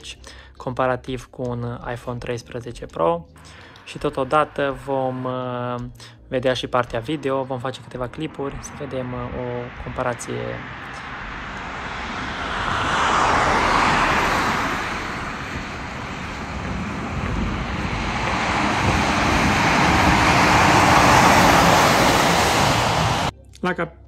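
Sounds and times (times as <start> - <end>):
truck driving past: 6.9 - 23.3
traffic on wet street: 7.8 - 23.3.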